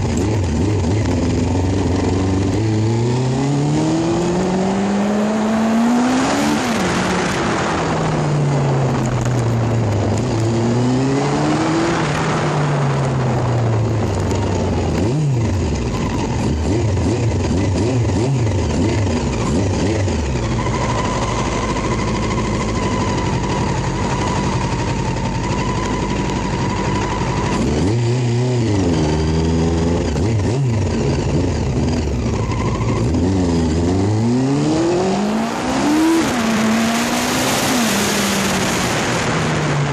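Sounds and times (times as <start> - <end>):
vehicle engine running: 0.0 - 39.9
wind noise on microphone: 6.0 - 27.9.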